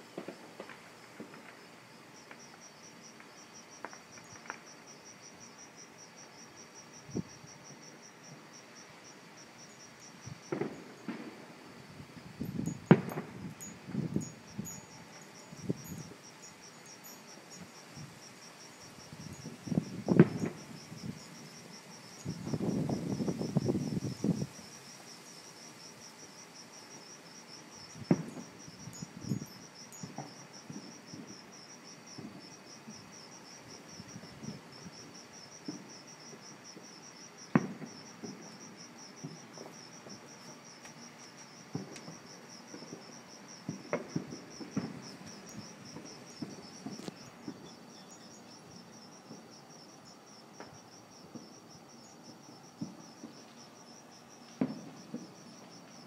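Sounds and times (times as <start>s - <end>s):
cricket chirping: 0.0s - 56.0s
distant fireworks bangs: 0.1s - 1.6s, 10.4s - 11.7s, 12.6s - 14.3s, 19.5s - 20.7s, 28.0s - 28.6s, 37.5s - 38.5s, 39.2s - 40.3s, 41.7s - 42.2s, 43.6s - 47.7s, 52.8s - 53.4s, 54.6s - 55.4s.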